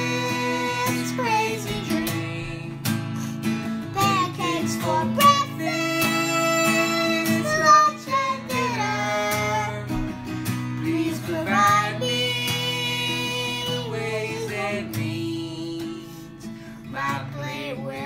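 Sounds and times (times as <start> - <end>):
acoustic guitar: 0.0 - 18.0
person singing: 0.0 - 18.0.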